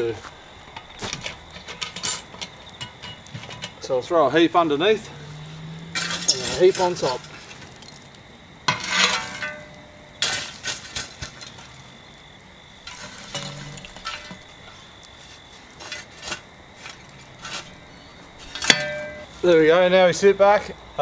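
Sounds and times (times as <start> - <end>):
metal shovel scraping coals: 0.0 - 19.7
coals clinking on metal lid: 0.7 - 4.1, 5.0 - 11.8, 12.8 - 14.9, 15.8 - 19.5.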